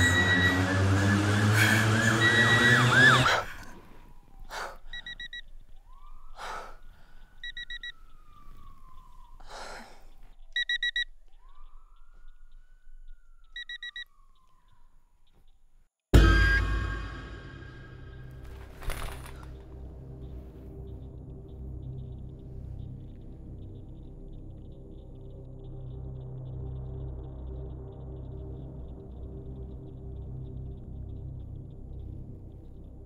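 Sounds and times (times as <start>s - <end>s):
faint siren: 0.0s - 15.6s.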